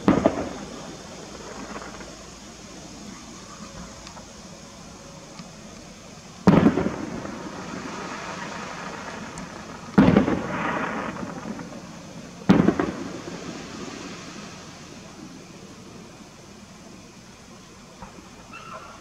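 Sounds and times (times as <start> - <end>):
firework shells bursting: 0.0 - 3.1, 5.3 - 14.4.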